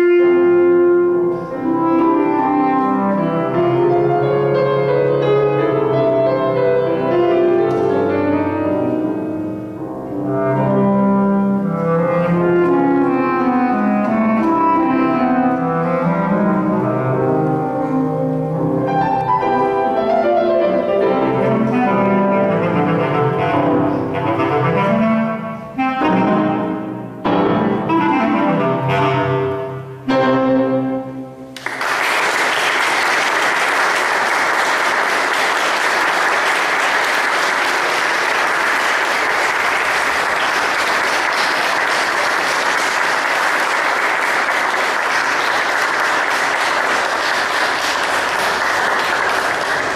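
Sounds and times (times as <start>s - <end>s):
bass clarinet and piano: 0.0s - 49.9s
audience applause: 31.6s - 49.9s.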